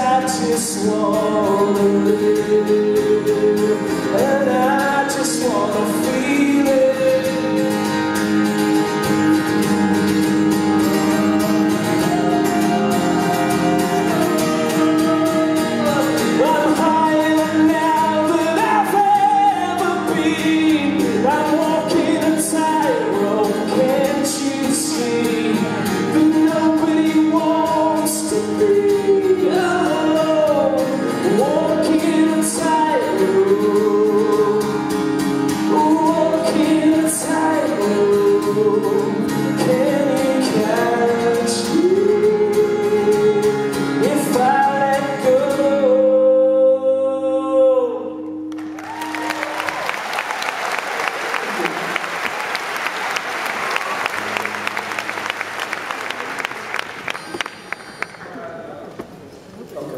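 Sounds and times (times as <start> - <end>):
man singing: 0.0 - 8.2, 11.6 - 48.4
acoustic guitar: 0.0 - 59.9.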